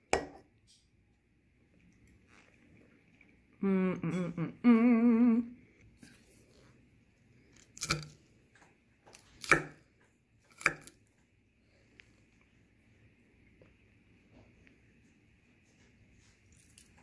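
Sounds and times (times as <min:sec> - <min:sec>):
fork crunching crisp lettuce: 0:16.4 - 0:17.0.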